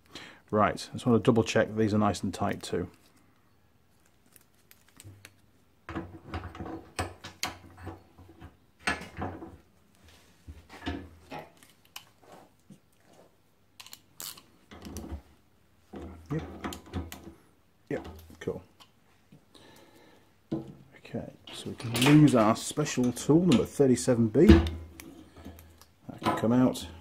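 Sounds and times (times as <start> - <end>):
rustling of gloved hands: 1.4 - 5.8.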